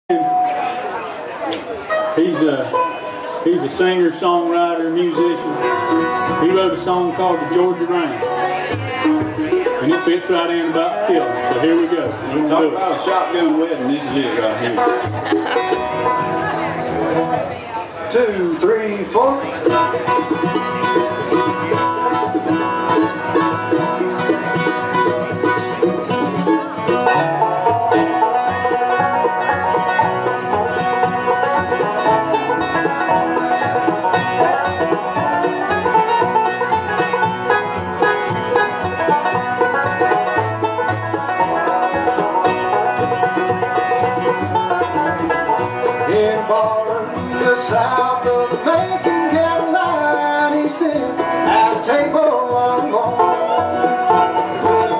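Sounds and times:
bluegrass band playing: 0.1 - 54.9.

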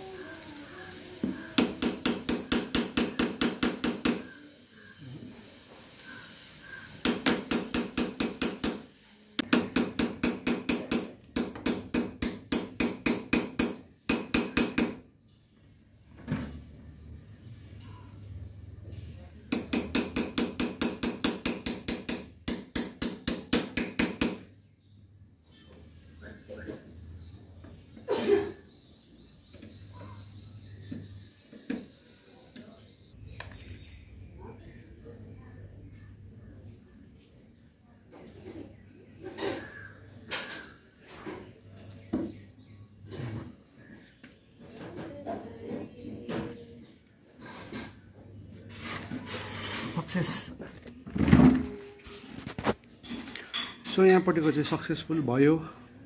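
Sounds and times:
hammer tapping on metal: 1.6 - 4.3, 7.0 - 8.8, 9.4 - 15.0, 19.5 - 24.5.

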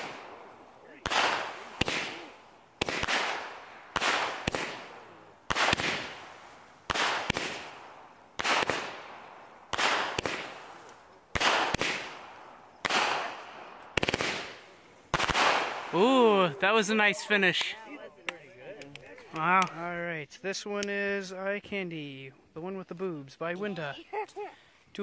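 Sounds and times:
firework burst bangs: 0.0 - 16.2
firework hiss: 0.0 - 17.7
firework launch pops: 1.0 - 9.1, 9.7 - 16.0.

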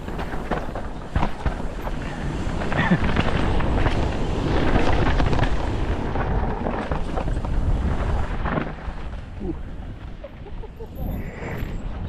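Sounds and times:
bike tyres on dirt: 0.0 - 12.0
wind rumble on microphone: 0.0 - 12.0
chain and frame rattling: 10.9 - 11.9.

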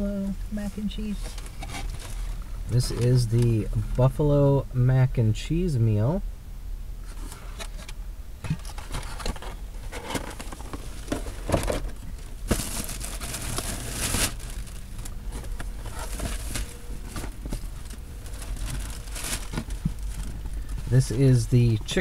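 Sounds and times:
food packaging crinkling: 8.6 - 20.7.

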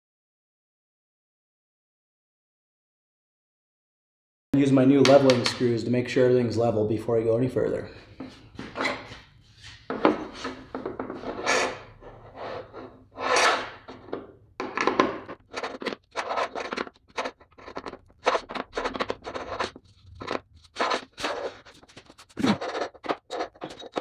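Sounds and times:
screwdriver scraping strokes: 8.6 - 14.2, 14.9 - 24.0.

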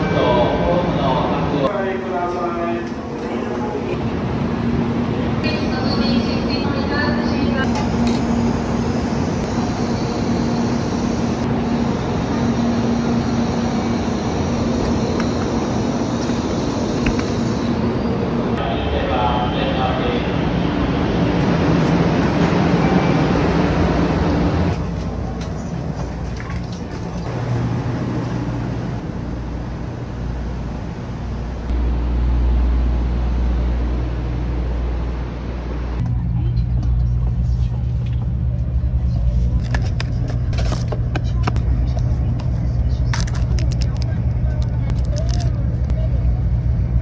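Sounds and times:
low machine hum: 0.0 - 47.0.

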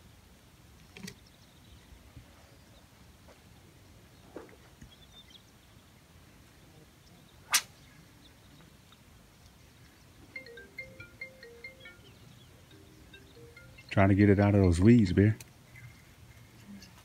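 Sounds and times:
fishing rod cast swish: 7.5 - 7.8
chime-like musical notes: 10.4 - 14.6.

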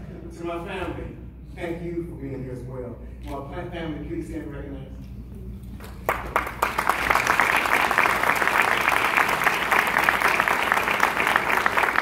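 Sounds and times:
audience applauding: 5.9 - 12.0.

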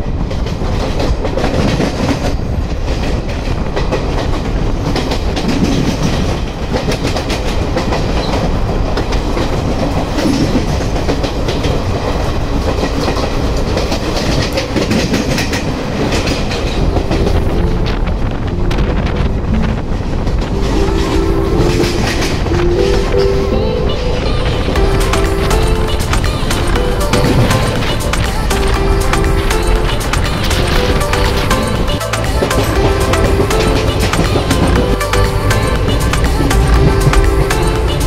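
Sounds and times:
wheels clicking over rail joints: 0.0 - 19.0, 19.6 - 38.0
wind rush: 0.0 - 35.0
train rumble: 0.0 - 38.0.

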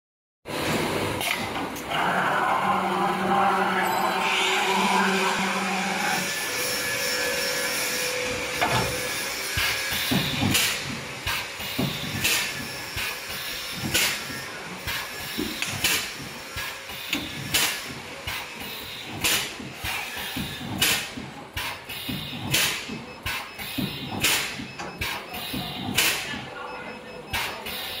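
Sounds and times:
steady machine hum: 0.5 - 28.0
pneumatic welding heads thumping: 8.5 - 26.3.

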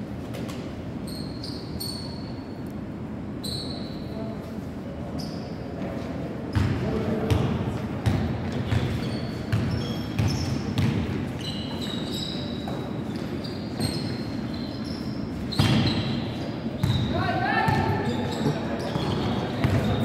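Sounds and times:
sneakers squeaking on court: 0.3 - 2.6, 5.2 - 5.9, 6.5 - 20.0
basketball bouncing on gym floor: 6.5 - 11.9, 15.5 - 16.2, 16.8 - 20.0.

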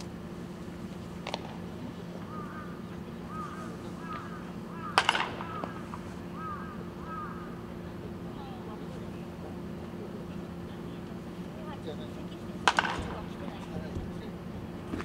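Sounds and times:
steady low hum: 0.0 - 15.0
baseball bat cracking a ball: 1.2 - 1.6, 4.9 - 5.9, 12.7 - 13.2
short arched bird calls: 2.3 - 7.6.

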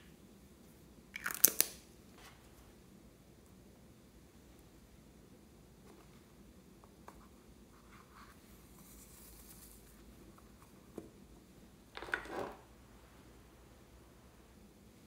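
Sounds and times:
plastic containers clattering: 11.9 - 12.7.

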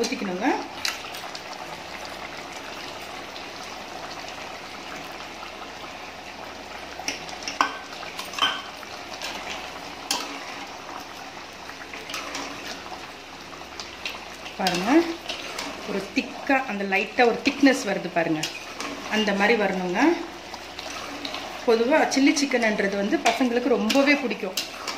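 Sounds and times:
gravy bubbling in a pot: 0.0 - 24.9
stirring in a pot: 6.7 - 24.9.

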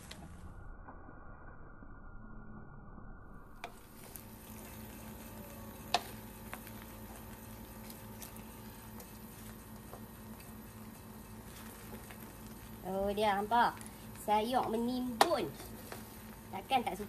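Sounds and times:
faint sizzle: 3.5 - 17.0.

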